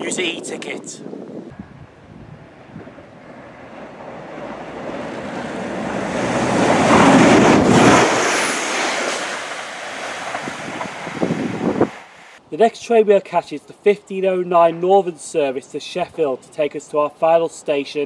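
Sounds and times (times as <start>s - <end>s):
train passing: 1.6s - 12.4s.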